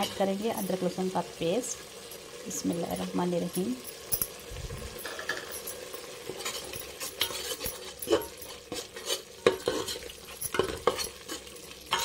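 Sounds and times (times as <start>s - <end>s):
oil sizzling: 0.0s - 12.0s
metal spoon scraping metal pot: 4.9s - 12.0s.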